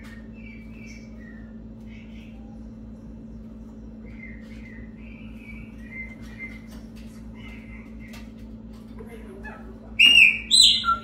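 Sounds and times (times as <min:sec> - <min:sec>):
blackbird chirping: 0:00.0 - 0:02.6, 0:04.0 - 0:08.2, 0:10.0 - 0:11.0
steady low hum: 0:00.0 - 0:11.0.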